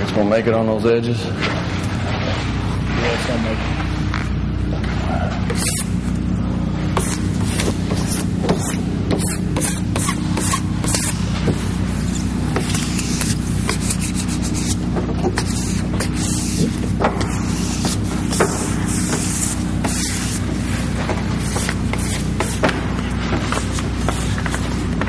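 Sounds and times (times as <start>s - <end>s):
steady low hum: 0.0s - 25.0s
hands rubbing vinyl film: 5.4s - 6.0s, 6.9s - 25.0s.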